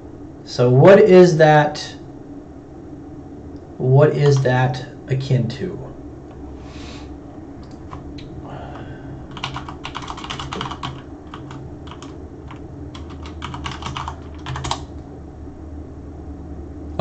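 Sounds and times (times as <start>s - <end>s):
computer keyboard typing: 9.3s - 14.9s.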